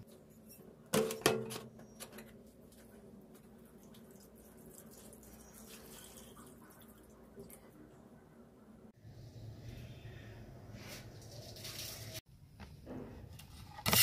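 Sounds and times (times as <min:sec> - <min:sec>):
liquid pouring and splashing: 0:03.6 - 0:07.8, 0:11.2 - 0:12.2.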